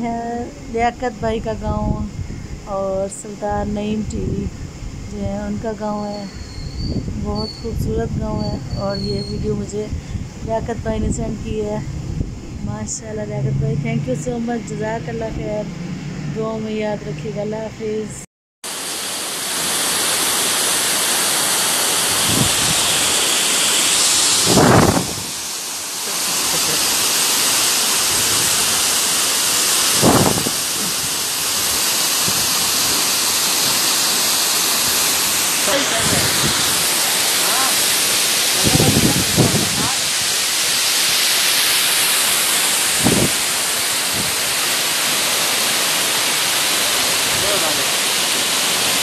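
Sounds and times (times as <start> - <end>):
person's voice: 0.0 - 2.1, 2.7 - 4.5, 5.1 - 6.3, 7.2 - 9.9, 10.5 - 11.8, 12.6 - 15.7, 16.4 - 18.3, 26.1 - 27.0, 35.6 - 36.6, 37.4 - 37.8, 38.5 - 40.2, 47.3 - 48.0
waterfall rushing over rocks: 18.7 - 49.0.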